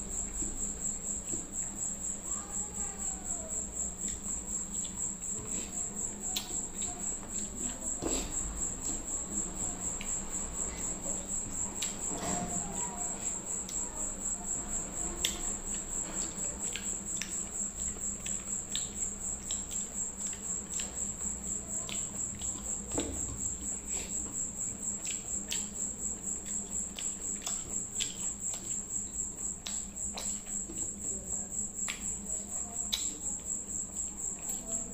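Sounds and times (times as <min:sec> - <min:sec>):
chewing and lip smacks: 0:15.2 - 0:22.8, 0:24.9 - 0:30.8, 0:31.8 - 0:32.2, 0:32.9 - 0:33.2.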